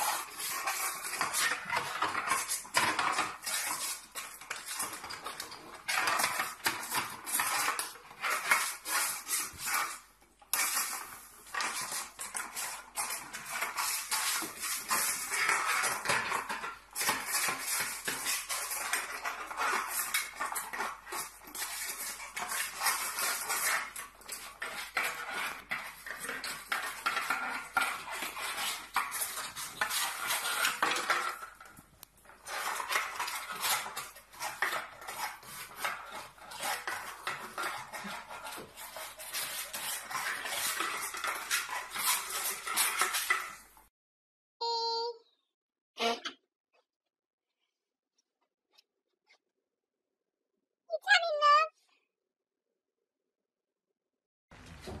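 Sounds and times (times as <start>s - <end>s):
dog eating from bowl: 0.0s - 43.6s
bowl scraping on tiles: 0.0s - 43.8s.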